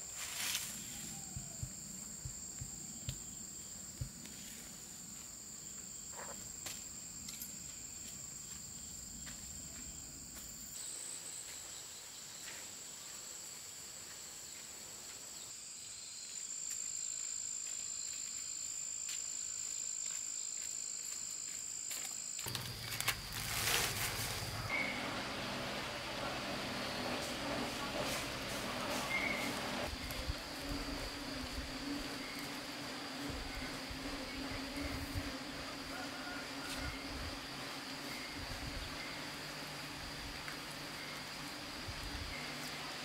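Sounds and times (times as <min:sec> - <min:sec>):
insects buzzing: 0:00.0 - 0:43.0
leafy greens rustled on plastic: 0:22.4 - 0:25.0.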